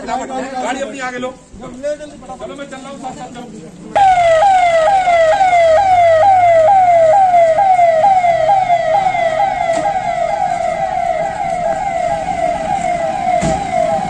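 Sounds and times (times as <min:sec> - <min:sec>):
electronic emergency siren: 0:04.0 - 0:14.0.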